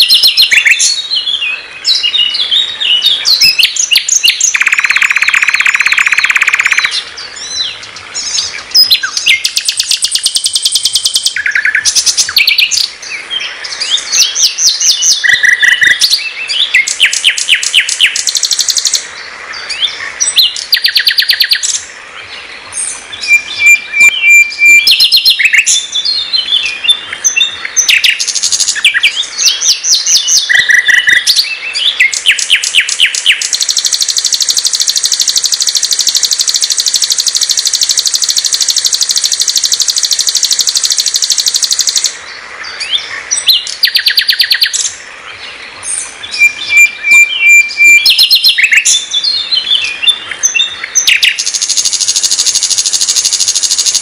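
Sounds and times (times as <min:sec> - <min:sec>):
bird trills and clicking notes: 0:03.4 - 0:07.0, 0:08.8 - 0:12.9, 0:16.8 - 0:19.0, 0:20.4 - 0:21.8, 0:23.6 - 0:25.8, 0:32.0 - 0:42.2, 0:51.0 - 0:54.0.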